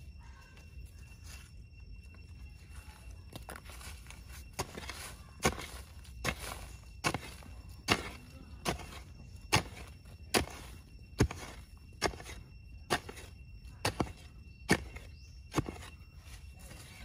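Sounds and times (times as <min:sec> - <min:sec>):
hoe chopping sandy soil: 0:04.5 - 0:16.0.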